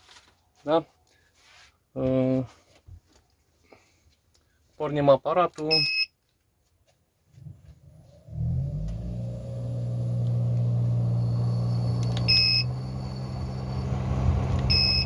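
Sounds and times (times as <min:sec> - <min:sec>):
short electronic beep: 0:12.3 - 0:12.8, 0:14.7 - 0:15.0.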